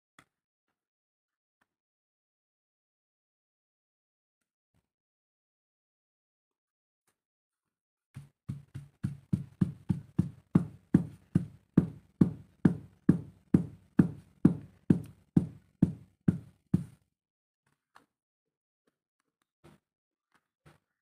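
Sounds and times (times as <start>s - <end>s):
stone pestle pounding in mortar: 8.5s - 16.9s.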